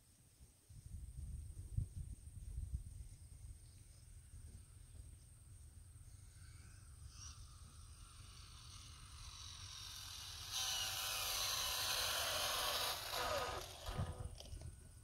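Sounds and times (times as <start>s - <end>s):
rc car motor whining: 6.4s - 14.7s.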